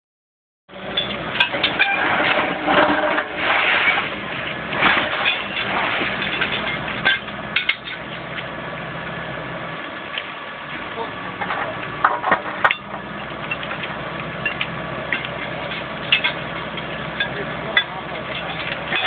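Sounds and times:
backhoe engine running: 0:00.7 - 0:19.0
metallic knocks and clatter: 0:00.9 - 0:08.5, 0:11.4 - 0:19.0.

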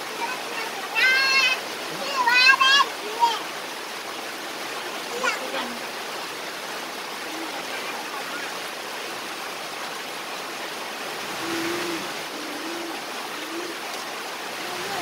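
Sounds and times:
light rain hiss: 0:00.0 - 0:15.0
faint talking: 0:00.2 - 0:03.5, 0:14.5 - 0:15.0.

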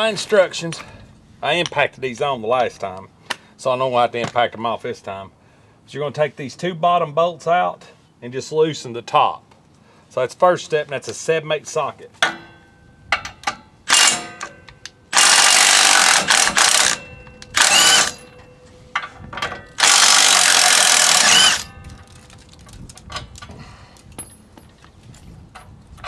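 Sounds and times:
impact wrench hammering bolts: 0:12.2 - 0:18.4, 0:19.0 - 0:21.8.

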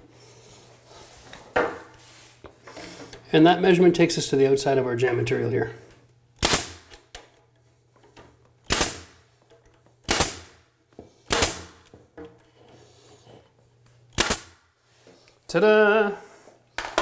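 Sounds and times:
nail gun firing: 0:06.4 - 0:07.0, 0:08.6 - 0:09.2, 0:10.0 - 0:10.6, 0:11.3 - 0:11.9, 0:14.1 - 0:14.6.

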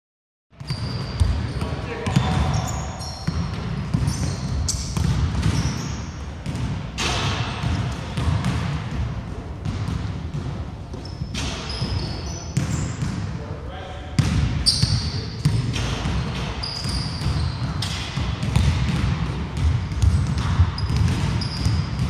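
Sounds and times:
shoes squeaking on floor: 0:00.6 - 0:06.2, 0:11.0 - 0:13.0, 0:14.6 - 0:15.1, 0:16.6 - 0:17.9, 0:20.7 - 0:21.9
basketball bouncing on wooden court: 0:00.6 - 0:13.3, 0:14.2 - 0:22.0.

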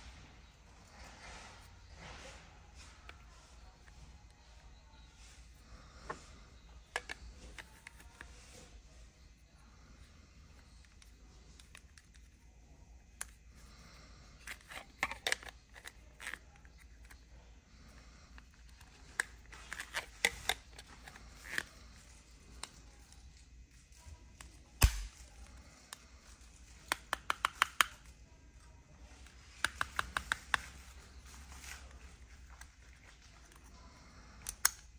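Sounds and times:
plastic case clicking in holster: 0:26.8 - 0:28.1.

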